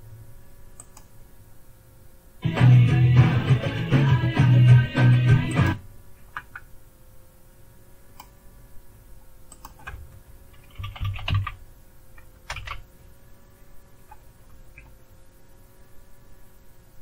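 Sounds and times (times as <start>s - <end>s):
faint steady hum: 0.0s - 17.0s
computer keyboard typing: 9.5s - 11.6s, 12.4s - 12.8s.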